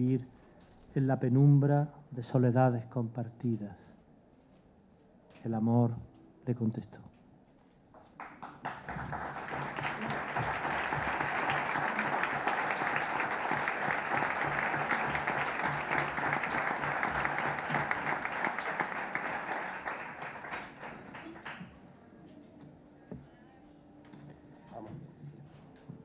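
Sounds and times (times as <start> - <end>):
audience applauding: 8.2 - 21.7.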